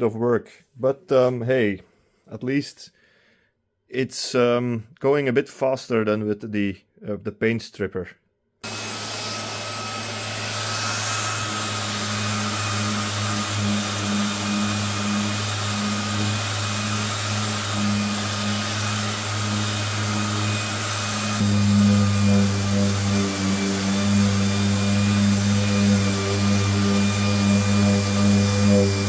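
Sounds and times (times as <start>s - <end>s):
orbital sander running: 8.6s - 29.0s.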